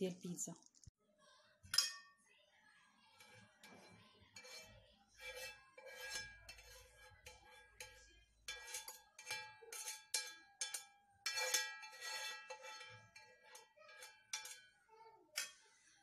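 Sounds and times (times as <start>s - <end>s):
spoon knocking on frying pan: 5.2s - 15.7s.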